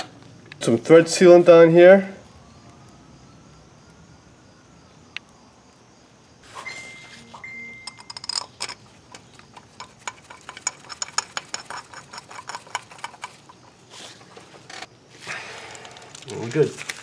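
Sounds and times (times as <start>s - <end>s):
ratchet wrench clicking: 7.8s - 13.5s.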